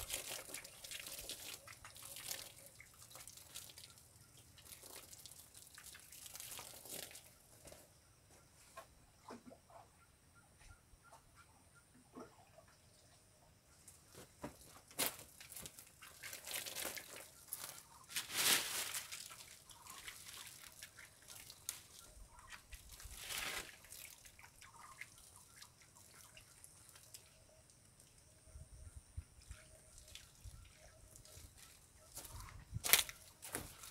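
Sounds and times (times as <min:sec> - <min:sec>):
footsteps crunching dry leaves: 0:16.4 - 0:19.4, 0:23.1 - 0:23.8, 0:32.2 - 0:33.9.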